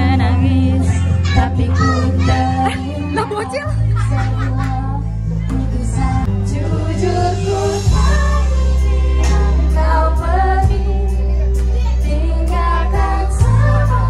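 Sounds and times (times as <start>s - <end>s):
backing music with heavy bass: 0.0s - 14.0s
woman singing into microphone: 0.0s - 14.0s.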